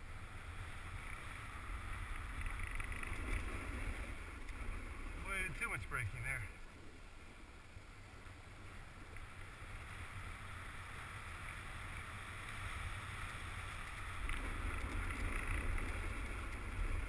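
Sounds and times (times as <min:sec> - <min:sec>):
wind rumble on microphone: 0:00.0 - 0:10.4, 0:11.1 - 0:17.0.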